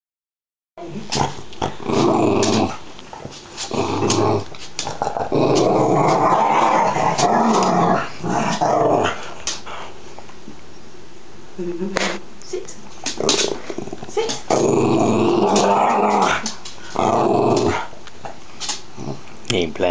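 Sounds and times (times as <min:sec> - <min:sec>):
dog play-growling: 0:00.9 - 0:10.0, 0:12.9 - 0:19.4.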